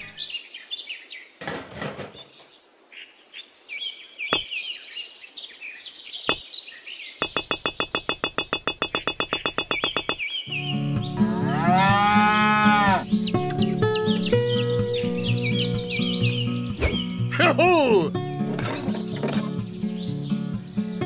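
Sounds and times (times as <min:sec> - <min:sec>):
birds chirping: 0:00.0 - 0:01.4, 0:02.1 - 0:21.0
sharp clicks: 0:07.2 - 0:10.2.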